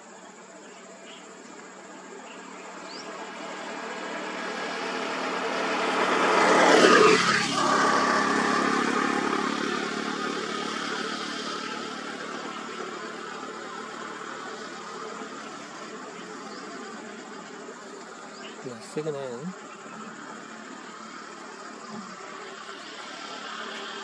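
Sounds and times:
motor vehicle passing by: 0.8 - 24.0.

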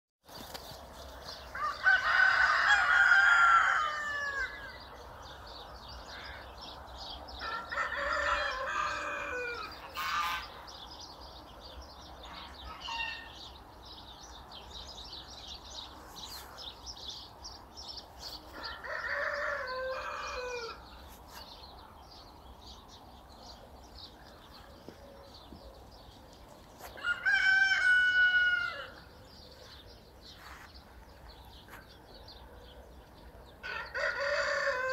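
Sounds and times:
rooster crowing: 1.5 - 4.8, 7.4 - 10.5, 18.6 - 20.8, 26.9 - 29.0, 33.6 - 34.9.

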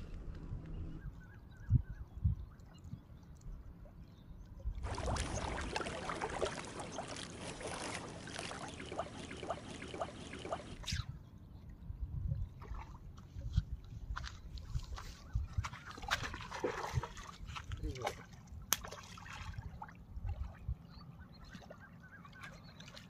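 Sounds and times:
faint low rumble: 0.0 - 5.6
water lapping and splashing: 2.4 - 23.0.

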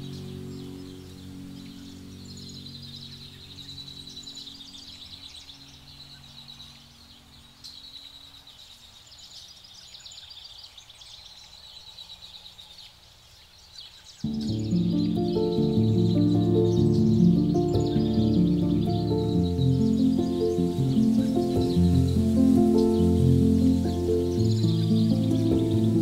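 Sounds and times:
soft low music notes: 0.0 - 8.4, 14.2 - 26.0
small birds chirping: 0.0 - 26.0.

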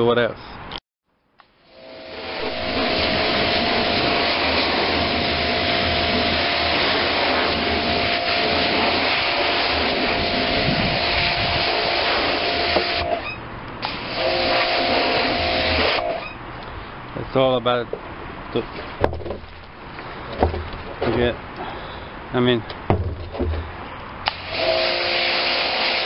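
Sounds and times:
pressure washer hum: 1.5 - 16.8, 18.6 - 22.1, 22.8 - 26.0
water spray hissing on plastic: 2.3 - 16.3.

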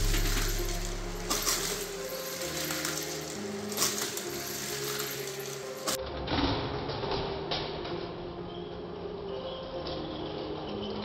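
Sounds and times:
plastic toy pieces clattering: 0.0 - 6.0
soft background music: 0.0 - 11.0.

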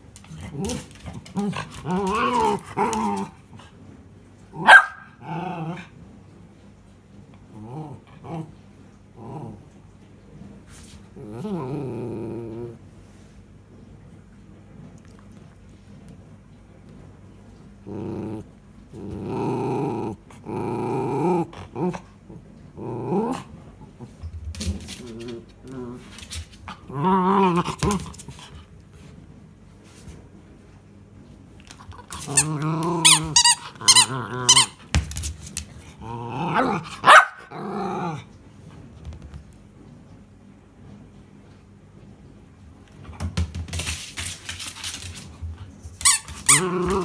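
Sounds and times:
dog grumbling and barking: 0.2 - 3.7, 4.5 - 6.0, 7.4 - 9.8, 11.1 - 12.9, 17.8 - 28.6, 31.6 - 34.9, 35.6 - 38.4, 46.1 - 47.0
dog yelping: 4.6 - 5.1.

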